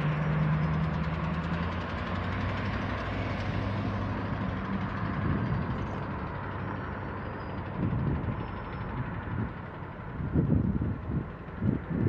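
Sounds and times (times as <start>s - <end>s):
locomotive engine droning: 0.0s - 12.0s.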